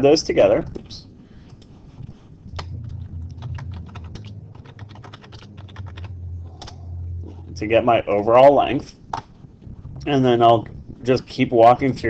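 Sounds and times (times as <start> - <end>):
low steady hum: 0.0 - 12.0
typing on computer keyboard: 3.5 - 6.7.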